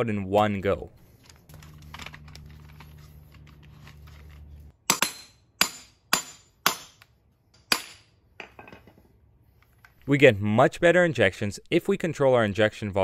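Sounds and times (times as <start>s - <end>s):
low steady hum: 0.1s - 9.9s.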